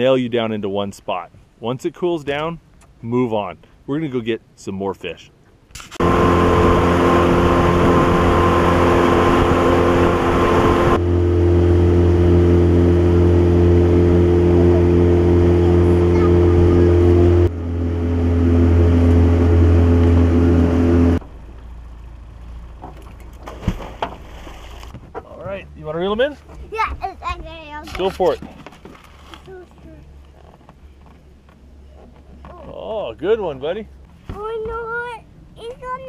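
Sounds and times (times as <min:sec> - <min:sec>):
wind and water noise: 0:00.0 - 0:36.0
boat engine running: 0:06.0 - 0:27.0.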